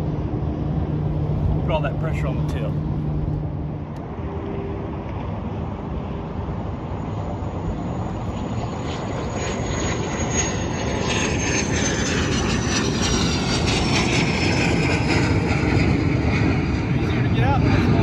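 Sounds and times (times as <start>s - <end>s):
high whine falling in pitch: 0.0s - 6.0s
airplane engine rumble: 0.0s - 18.0s.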